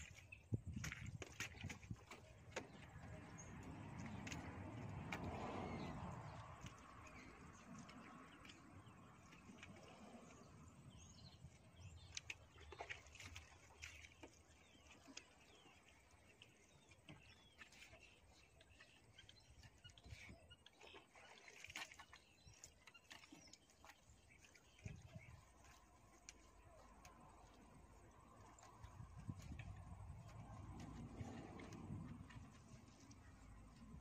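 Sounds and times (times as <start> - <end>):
birds chirping: 0.0 - 34.0
low rumble: 26.7 - 34.0.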